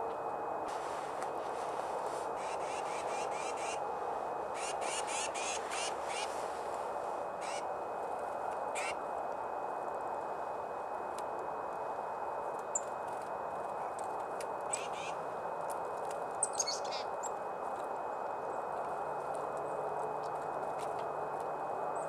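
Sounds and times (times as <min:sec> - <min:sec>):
steady background hiss: 0:00.0 - 0:22.0
small songbirds calling: 0:02.3 - 0:03.8, 0:04.5 - 0:06.5, 0:07.4 - 0:07.7, 0:08.8 - 0:09.0, 0:14.7 - 0:15.2, 0:16.4 - 0:17.3.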